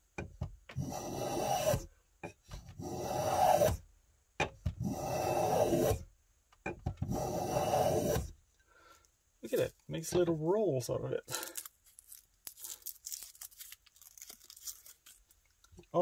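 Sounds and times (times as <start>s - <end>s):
hand plane shaving wood: 0.7s - 1.9s, 2.8s - 3.8s, 4.8s - 6.0s, 7.0s - 8.3s.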